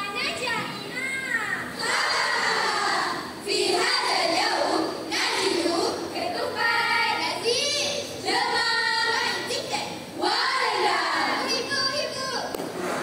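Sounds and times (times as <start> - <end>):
girls chanting in unison: 1.8 - 11.7.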